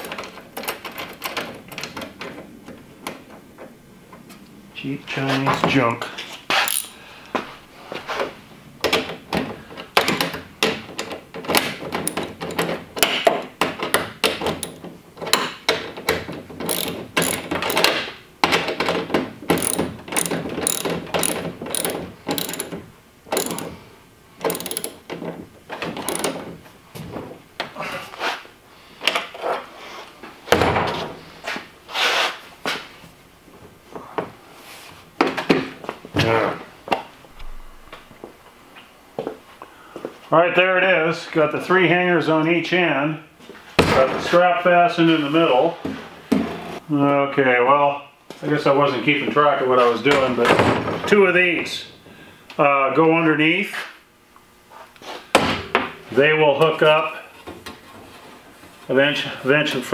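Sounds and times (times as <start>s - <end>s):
ratchet wrench clicking: 6.7s - 6.9s, 16.6s - 17.9s, 19.5s - 23.7s, 24.4s - 25.0s, 26.0s - 26.4s.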